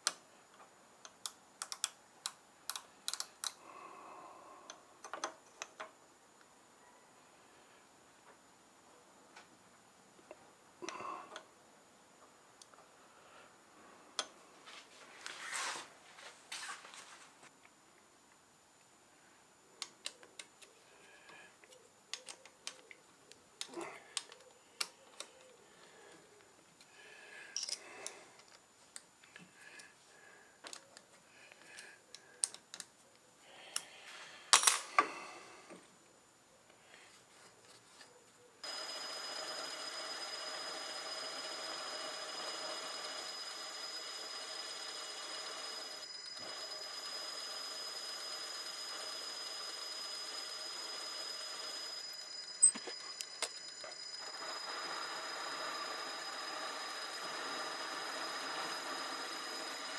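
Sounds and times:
metal tool clicks and clinks: 27.6s - 27.8s
lathe running with a whine: 38.6s - 59.9s.

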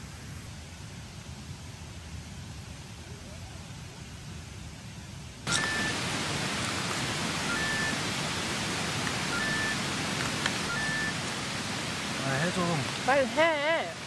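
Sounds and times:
faint high peeps: 5.5s - 6.0s, 7.4s - 8.0s, 9.2s - 9.8s, 10.6s - 11.2s
stream rushing: 5.5s - 14.0s.

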